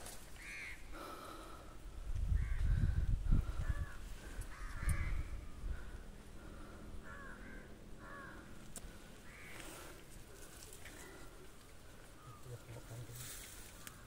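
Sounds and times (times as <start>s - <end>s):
crows cawing: 0.1s - 1.6s, 2.4s - 14.0s.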